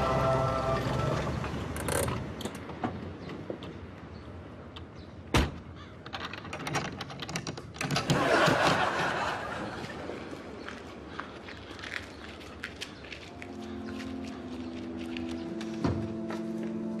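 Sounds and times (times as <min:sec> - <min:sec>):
audience laughter: 0:08.1 - 0:10.2.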